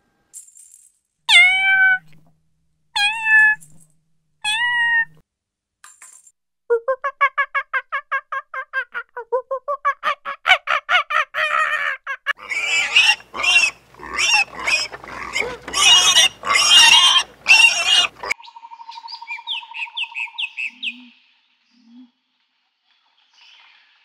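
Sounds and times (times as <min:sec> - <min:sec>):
pigs squealing: 0:11.4 - 0:18.4.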